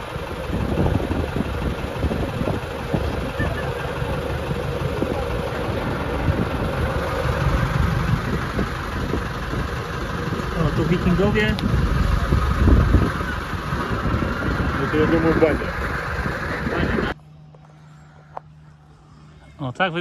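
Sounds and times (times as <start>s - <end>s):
motor boat engine rumbling: 0.0s - 20.0s.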